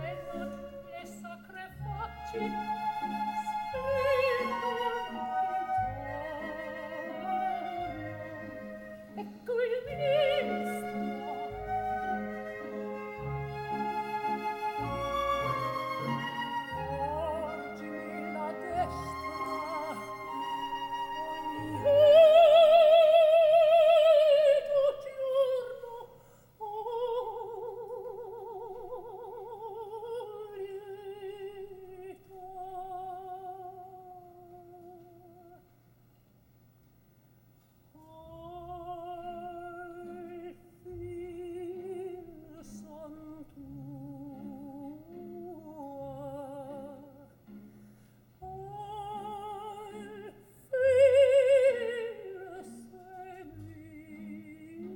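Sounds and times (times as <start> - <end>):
soprano singing opera: 0.0 - 35.7, 38.0 - 47.4, 48.4 - 54.9.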